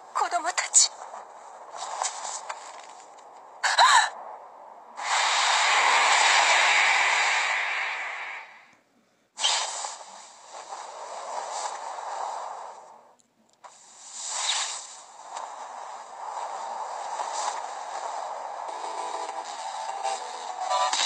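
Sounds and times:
breathy hissing and whooshing: 5.0 - 8.7.

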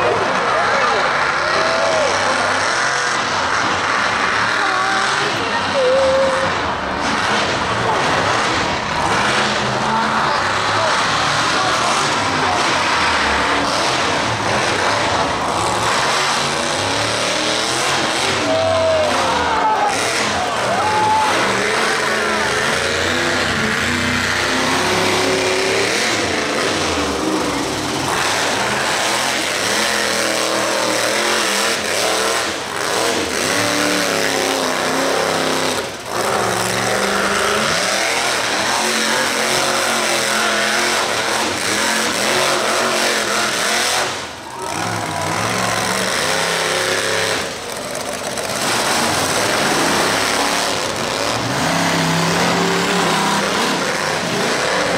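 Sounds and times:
truck engine revving: 0.0 - 54.9.

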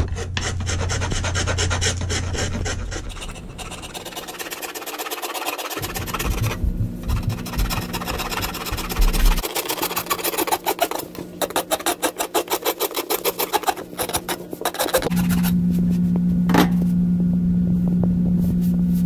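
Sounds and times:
rasp scraping wooden handle: 0.0 - 15.5
steady low hum: 0.0 - 19.0.

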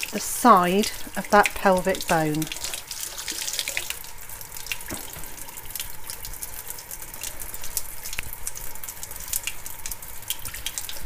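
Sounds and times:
small wet clicks and splashes: 0.8 - 11.0
tap running into sink: 4.7 - 6.4.

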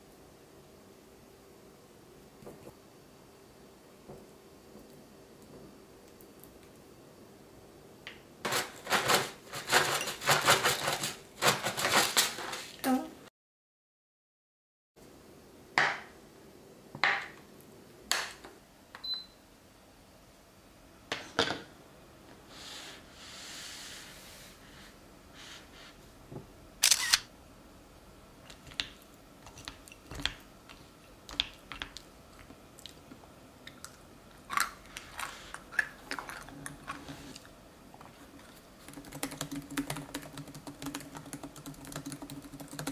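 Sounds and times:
camera shutter clicks: 26.8 - 27.2.

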